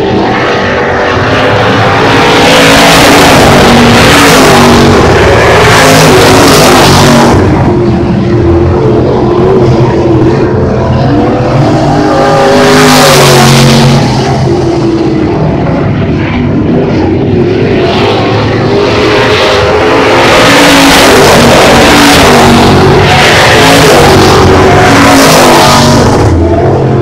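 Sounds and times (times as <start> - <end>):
race car engines: 0.0 - 27.0.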